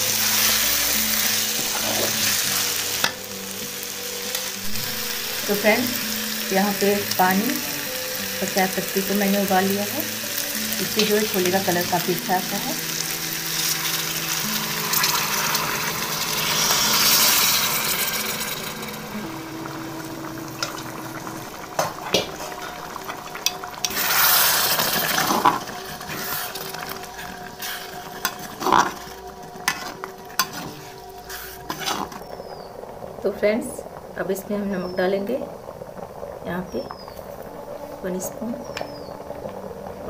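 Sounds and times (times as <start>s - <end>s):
sizzling and hissing: 0.0s - 40.0s
water pouring into hot pot: 4.8s - 33.2s.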